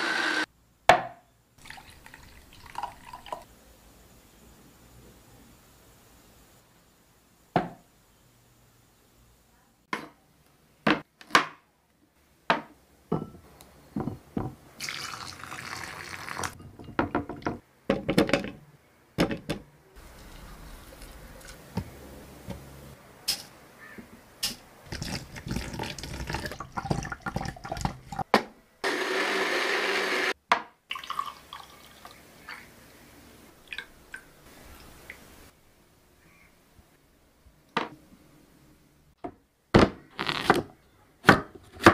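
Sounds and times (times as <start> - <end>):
mixer grinder whirring: 0.0 - 0.5, 28.8 - 30.4
liquid pouring: 1.6 - 3.5, 14.8 - 16.6, 20.0 - 21.6, 24.9 - 28.2, 30.9 - 32.6.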